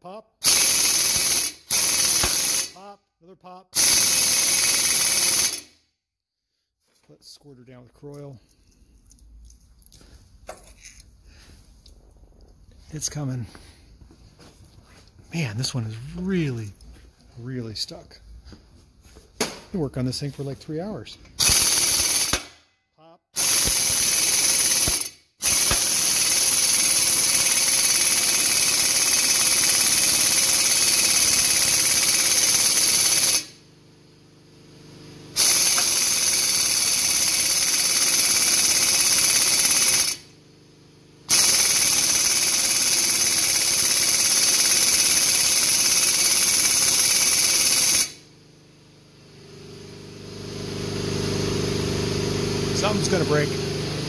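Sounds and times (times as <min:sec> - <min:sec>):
air impact wrench hammering: 0:00.4 - 0:02.8, 0:03.8 - 0:05.8, 0:21.2 - 0:22.6, 0:23.4 - 0:33.6, 0:35.4 - 0:40.3, 0:41.3 - 0:48.3.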